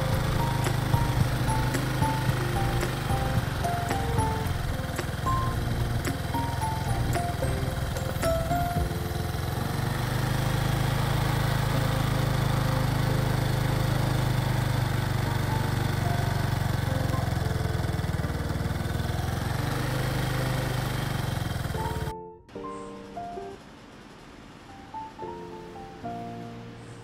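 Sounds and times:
road and wind noise: 0.0s - 15.2s, 15.9s - 22.1s
motor scooter engine running: 0.0s - 22.1s.

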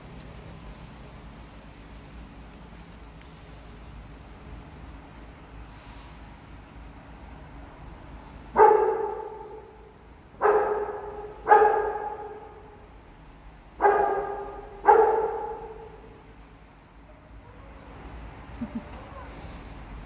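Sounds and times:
dog barking with echo: 8.6s - 9.7s, 10.4s - 12.6s, 13.8s - 16.0s.

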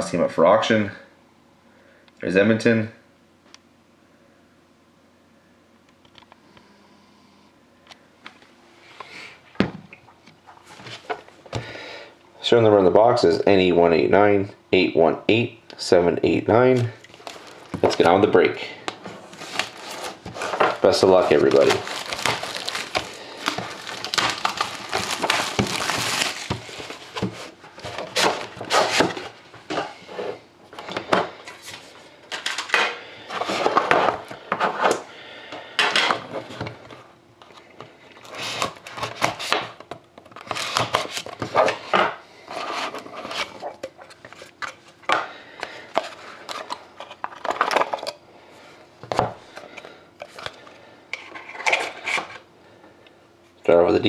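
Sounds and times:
plastic wrap crinkling and tearing: 17.1s - 18.1s, 19.3s - 29.2s.

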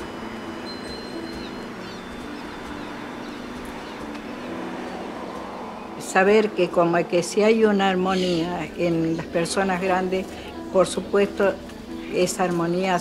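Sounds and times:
faint birds chirping: 0.0s - 6.2s
low background noise: 0.0s - 13.0s.

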